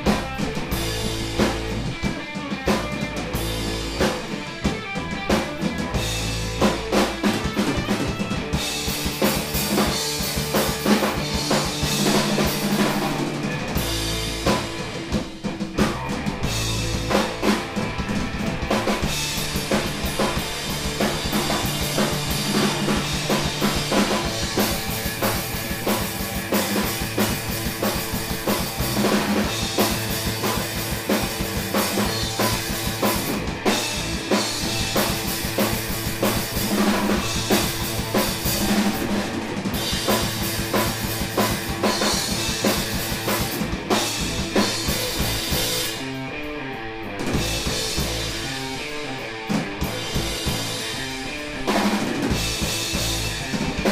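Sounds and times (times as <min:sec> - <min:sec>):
drum kit playing: 0:00.0 - 0:53.9
electric guitars: 0:00.0 - 0:53.9.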